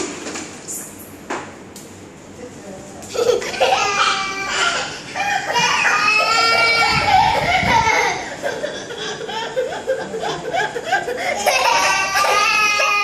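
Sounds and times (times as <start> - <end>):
young child laughing: 3.1 - 12.4.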